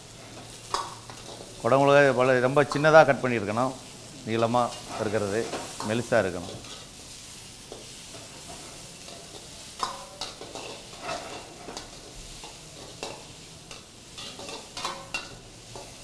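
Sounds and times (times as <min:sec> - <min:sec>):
vegetables sizzling in hot oil: 0:00.0 - 0:16.0
utensil scraping and clacking on pan: 0:00.3 - 0:01.6, 0:04.6 - 0:07.0, 0:07.7 - 0:16.0.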